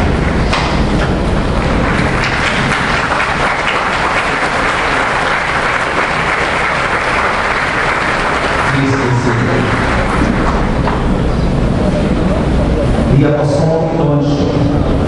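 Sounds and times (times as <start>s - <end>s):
congregation applauding: 0.0s - 11.2s.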